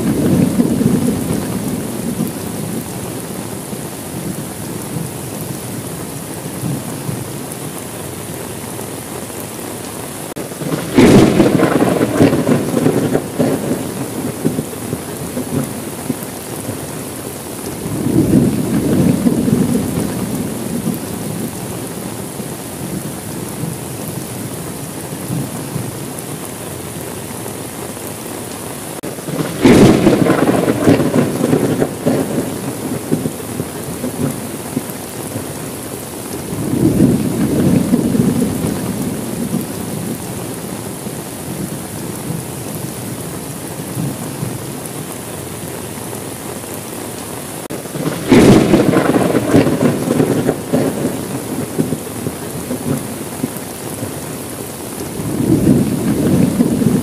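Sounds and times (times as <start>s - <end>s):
loud thunderclap: 0.0s - 2.9s, 10.4s - 16.9s, 17.8s - 21.5s, 29.0s - 35.5s, 36.5s - 40.3s, 47.7s - 54.2s, 55.1s - 57.0s
thunder rumbling: 0.0s - 27.2s, 28.0s - 46.8s, 47.4s - 57.0s
steady rain: 0.0s - 57.0s.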